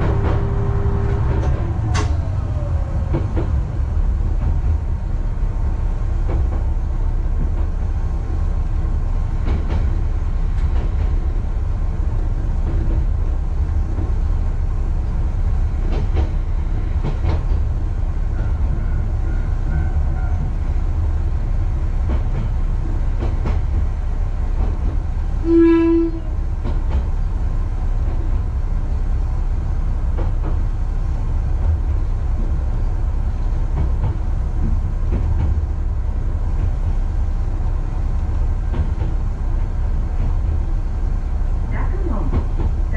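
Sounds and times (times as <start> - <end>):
diesel railcar engine rumbling: 0.0 - 42.9
train horn blast: 25.4 - 26.4.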